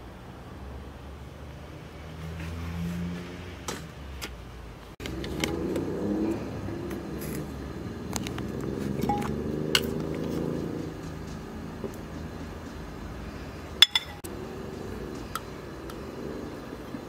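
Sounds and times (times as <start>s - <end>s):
metal ladle clinking on pot: 13.8s - 14.2s.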